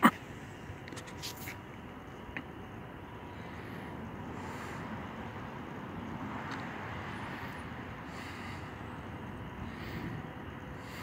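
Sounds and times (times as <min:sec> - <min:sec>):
outdoor background rumble: 0:00.0 - 0:11.0.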